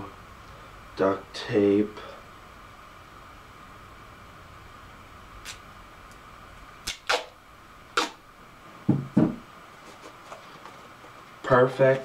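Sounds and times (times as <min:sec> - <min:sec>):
duct tape ripping: 0:05.4 - 0:05.6, 0:06.8 - 0:07.4, 0:08.0 - 0:08.2.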